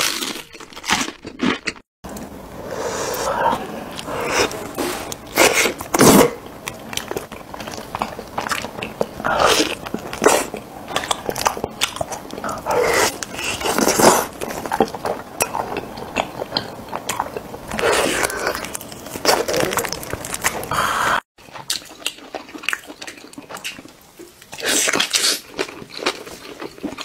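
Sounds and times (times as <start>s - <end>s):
person chewing and biting meat: 0.0s - 1.8s.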